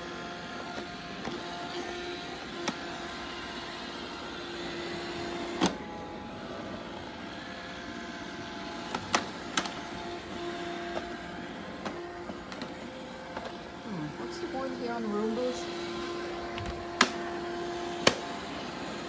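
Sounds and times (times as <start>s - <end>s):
robot vacuum running on carpet: 0.0s - 19.0s.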